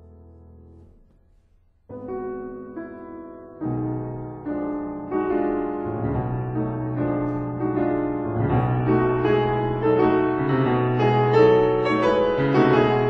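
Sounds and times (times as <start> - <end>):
slow piano music: 0.0 - 13.0.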